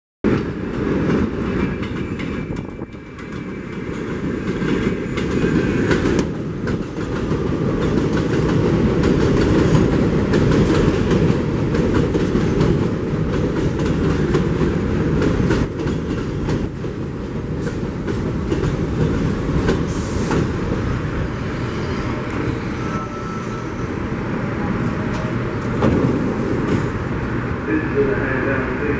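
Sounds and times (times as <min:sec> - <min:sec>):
subway train pulling in: 0:00.3 - 0:28.9
wheels clicking at rail joints: 0:01.1 - 0:20.5
faint wheel squeal: 0:21.4 - 0:24.0.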